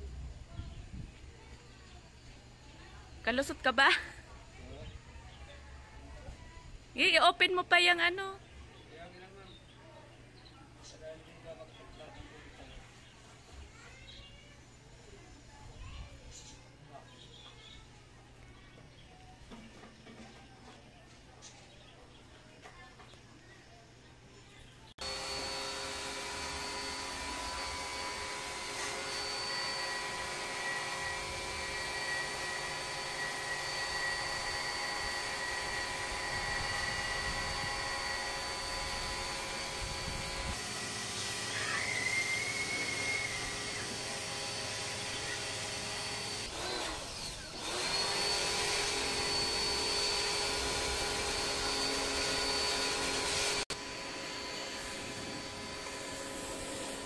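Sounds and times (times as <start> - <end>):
pressure washer whine: 25.0 - 57.0
water spraying: 54.4 - 57.0.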